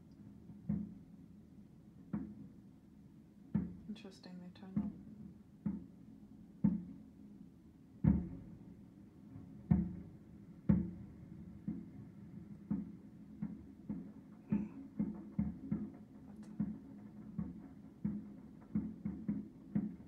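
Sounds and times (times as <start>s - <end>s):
dull thumps: 12.6s - 20.0s.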